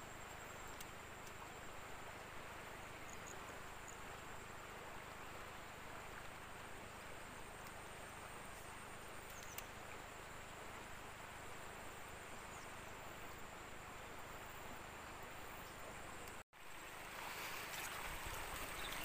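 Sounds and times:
river water flowing over shallows: 0.0 - 19.0
faint click: 0.7 - 1.5, 7.6 - 7.8, 8.5 - 9.8, 16.2 - 16.4.

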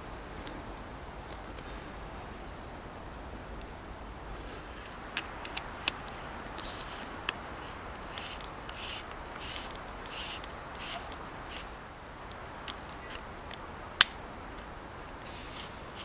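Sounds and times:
fingers rubbing camera lens: 4.8 - 11.9, 15.4 - 16.0
camera clicks: 5.2 - 11.7.

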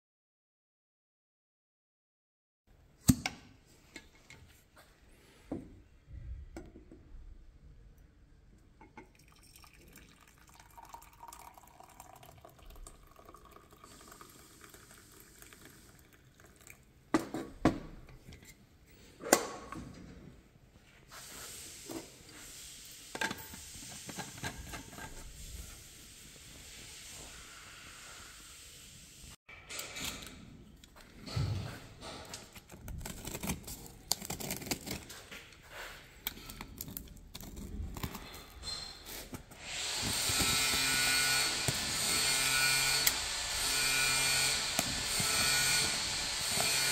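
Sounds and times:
tea pouring into mug: 9.0 - 17.0.

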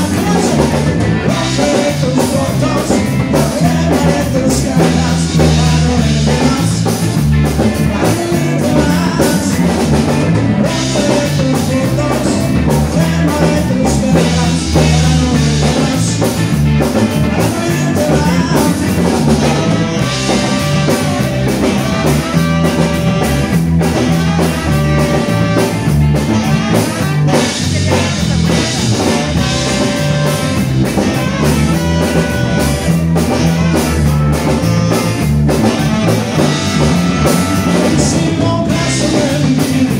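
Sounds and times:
bass: 0.0 - 39.9
drum kit: 0.0 - 39.9
electric guitar: 0.0 - 39.9
saxophone: 0.0 - 39.9
trumpet: 17.0 - 39.4.

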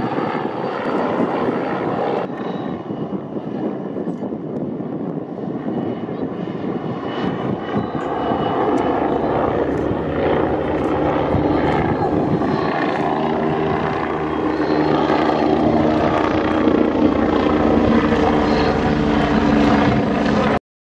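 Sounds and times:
helicopter flying overhead: 0.0 - 20.6.

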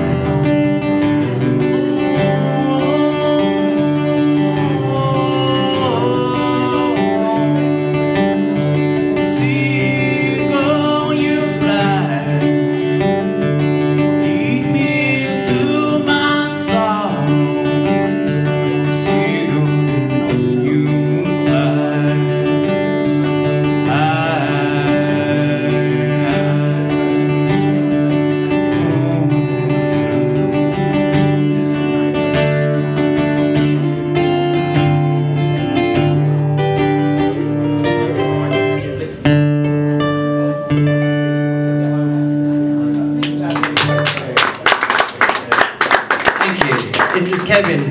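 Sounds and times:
acoustic guitar chords: 0.0 - 47.9
man singing: 1.5 - 39.4.

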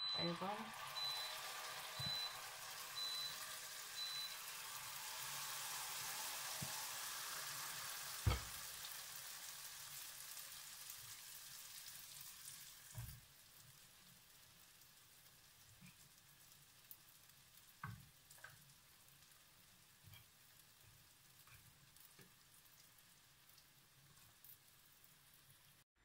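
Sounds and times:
batter sizzling in hot oil: 0.0 - 25.8
single knock: 8.2 - 8.5.

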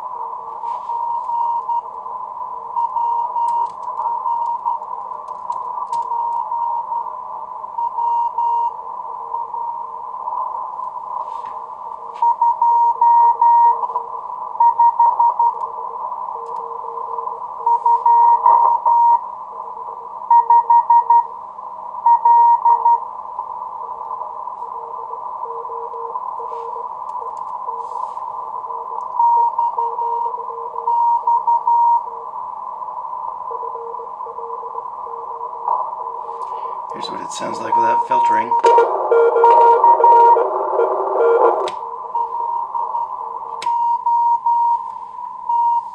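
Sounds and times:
radio band hiss: 0.0 - 2.8, 26.1 - 29.2, 32.0 - 43.6
fainter lower morse code tone: 0.2 - 2.0, 2.6 - 10.4, 11.2 - 21.4, 22.0 - 23.1, 24.6 - 32.4, 33.4 - 45.9
higher morse code tone: 12.1 - 14.0, 16.3 - 19.2, 20.3 - 21.3, 24.7 - 32.2, 33.5 - 44.9.

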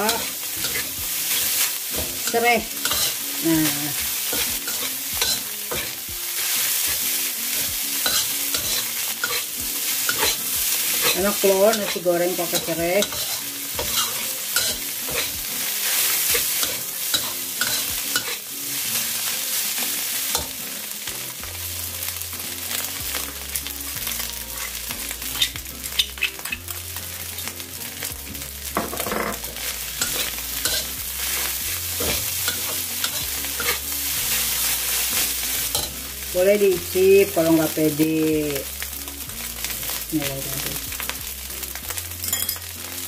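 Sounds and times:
metal spatula scraping a pan: 0.0 - 20.6, 28.9 - 36.0
rice sizzling in a wok: 0.0 - 43.0.

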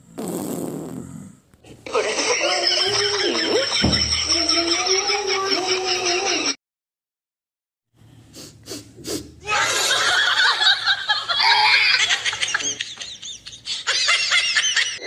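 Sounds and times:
people laughing: 1.9 - 6.6, 9.5 - 15.0.

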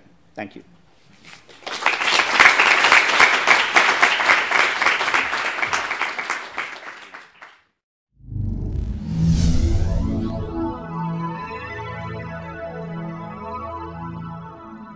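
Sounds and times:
audience applauding: 1.5 - 7.7.

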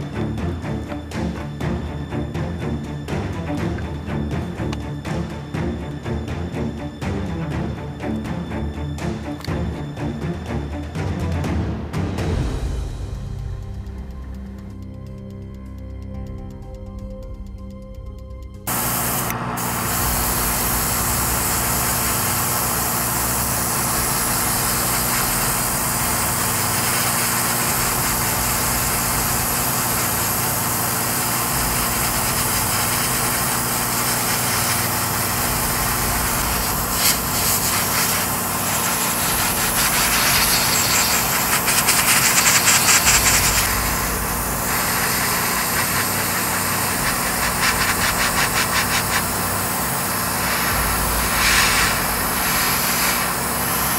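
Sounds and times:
airbrush spraying hiss: 18.7 - 53.9
electric motor humming: 18.7 - 53.9.

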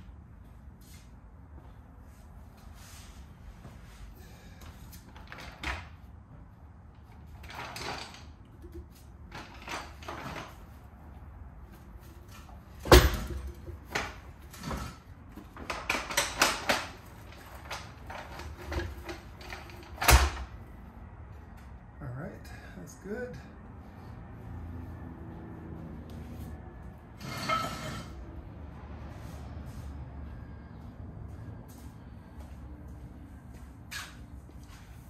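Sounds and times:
metal knocks and clunks: 12.8 - 16.9.

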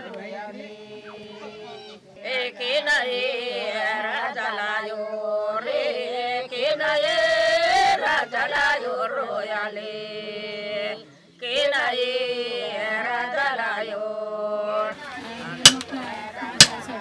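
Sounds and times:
ornamented singing: 0.0 - 17.0.

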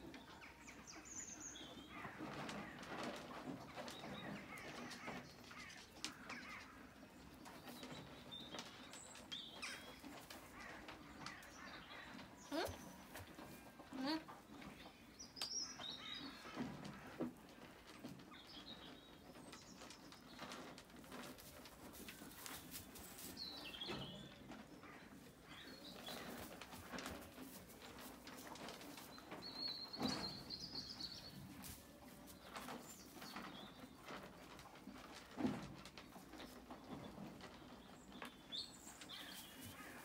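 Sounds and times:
small birds chirping: 7.3 - 16.4, 36.1 - 40.0.

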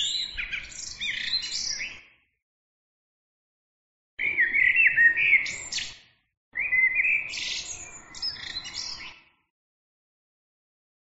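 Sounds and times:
songbird singing: 0.0 - 2.2, 4.2 - 9.5.

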